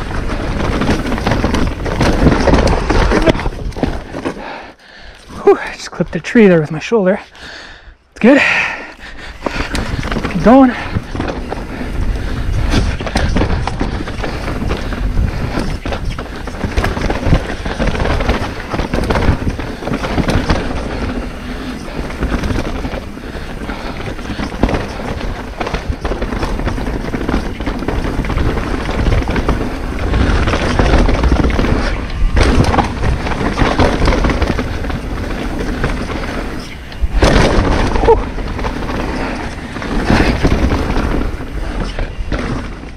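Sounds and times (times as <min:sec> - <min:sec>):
tyre rumble: 0:00.0 - 0:05.7, 0:08.4 - 0:42.9
bike knocking and rattling: 0:00.0 - 0:07.3, 0:08.2 - 0:42.9
wind on microphone: 0:09.3 - 0:42.9.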